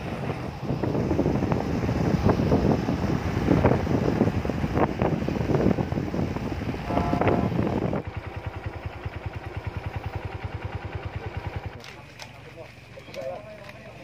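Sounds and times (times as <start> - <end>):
wind buffeting microphone: 0.0 - 10.9
motorcycle engine idling: 0.0 - 14.0
motorcycle engines riding: 0.0 - 14.0.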